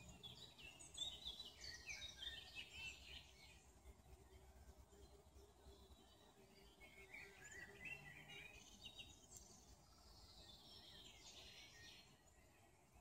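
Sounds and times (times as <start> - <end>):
songbird twittering: 0.0 - 3.6
faint background noise: 0.0 - 13.0.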